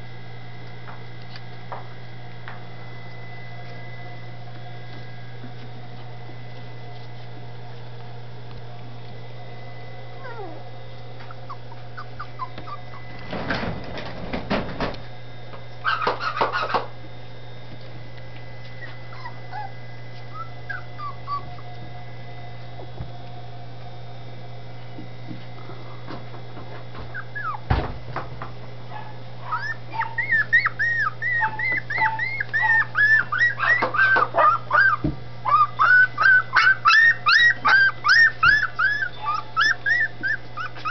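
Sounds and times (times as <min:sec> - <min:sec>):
steady low hum: 0:00.0 - 0:40.9
puppies whimpering and yelping: 0:10.0 - 0:13.2, 0:15.8 - 0:16.8, 0:18.6 - 0:21.8, 0:26.9 - 0:27.7, 0:28.9 - 0:40.9.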